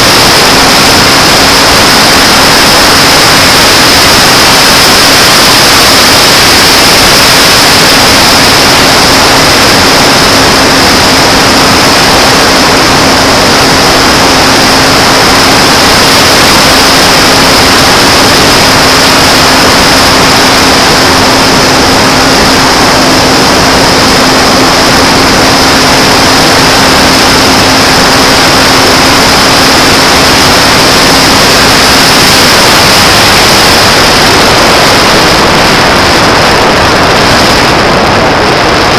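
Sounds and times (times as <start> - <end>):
electric motor and propeller humming: 0.0 - 38.9
thin high whine: 0.0 - 38.9
wind rush over microphone: 0.0 - 38.9.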